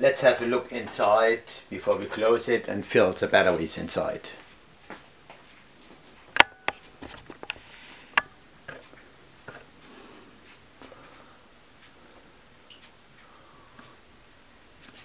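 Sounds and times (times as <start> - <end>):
hard objects clicking and knocking: 6.3 - 9.7.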